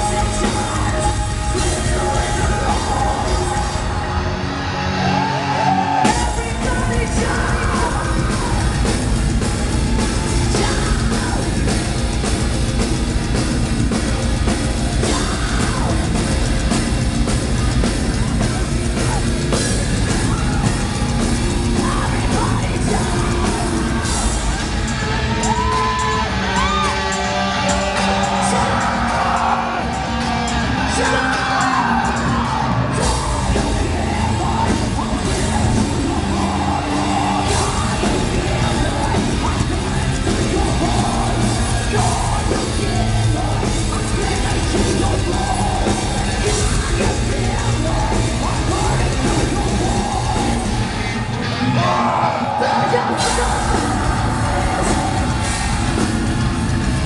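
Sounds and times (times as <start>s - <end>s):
person yelling and singing: 0.0s - 4.3s, 5.0s - 9.0s, 10.4s - 11.8s, 18.2s - 27.2s
live heavy metal band: 0.0s - 57.0s.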